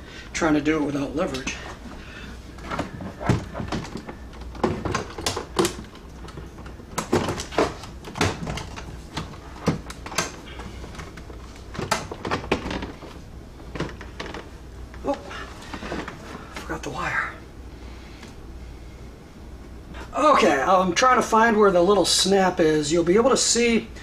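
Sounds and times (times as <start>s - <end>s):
plastic console clicks and rattles: 2.7s - 14.5s.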